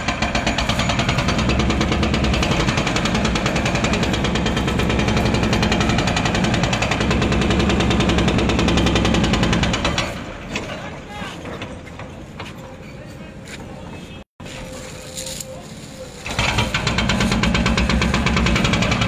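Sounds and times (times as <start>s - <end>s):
demolition breaker hammering concrete: 0.0s - 10.7s, 16.3s - 19.0s.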